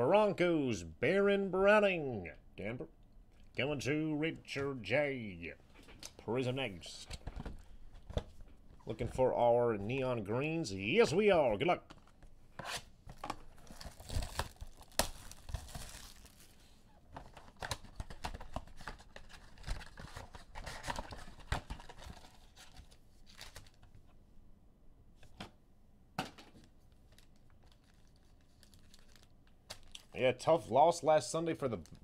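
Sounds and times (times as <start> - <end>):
foil wrappers tearing and crinkling: 13.6 - 16.6, 27.1 - 30.1.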